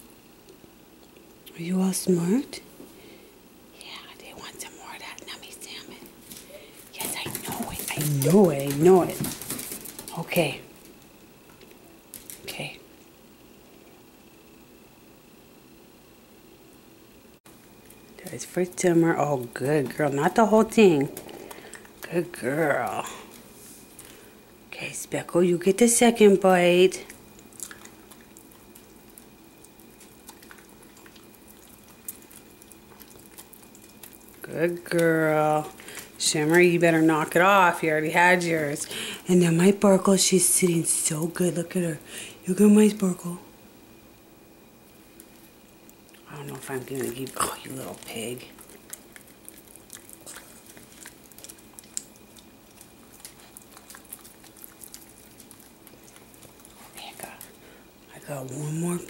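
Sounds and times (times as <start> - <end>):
dog nibbling wet clicking: 27.1 - 37.4, 45.2 - 57.6.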